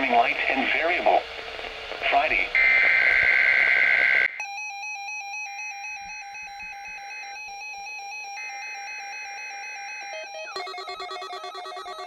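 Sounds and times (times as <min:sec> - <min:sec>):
trilling electronic alert tone: 0:10.0 - 0:12.0
digital data bursts screeching: 0:10.5 - 0:12.0.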